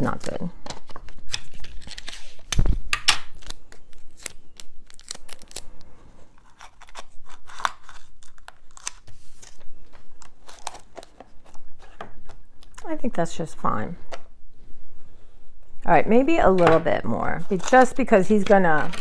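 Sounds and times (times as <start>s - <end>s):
adhesive tape pulled and torn: 6.4s - 9.6s.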